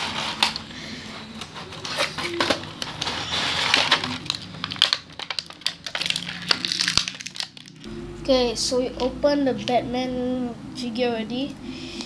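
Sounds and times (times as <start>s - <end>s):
plastic packaging crinkling: 0.1s - 7.9s.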